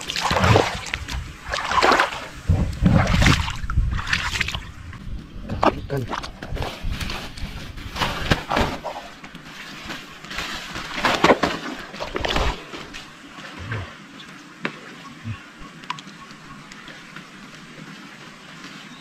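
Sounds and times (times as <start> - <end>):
plastic sack rustling: 6.4 - 13.2.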